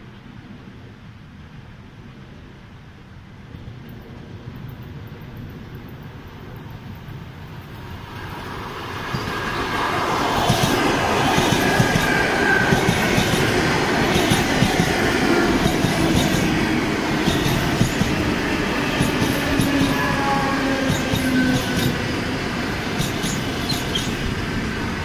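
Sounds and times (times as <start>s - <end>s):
train rolling noise: 3.2s - 25.0s
wheels clattering over rail joints: 9.0s - 24.3s.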